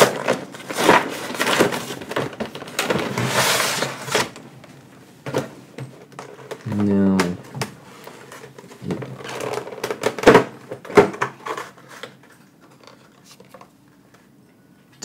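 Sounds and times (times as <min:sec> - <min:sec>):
packaging rustling and crinkling: 0:00.0 - 0:04.4, 0:07.5 - 0:13.7.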